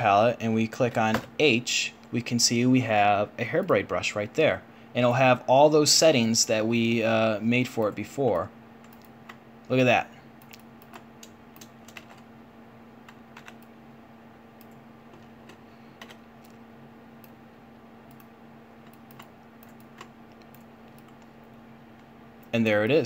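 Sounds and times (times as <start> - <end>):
steady low hum: 0.0 - 23.0
keyboard and mouse clicks: 10.4 - 12.3, 13.0 - 13.7, 14.6 - 16.6, 18.1 - 21.3.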